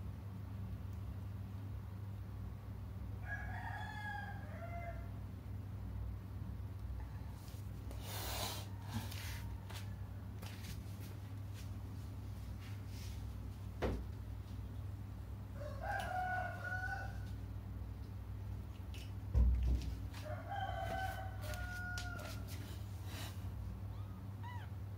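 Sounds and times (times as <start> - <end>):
steady low hum: 4.4 - 24.9
newborn kittens crying: 23.8 - 24.9.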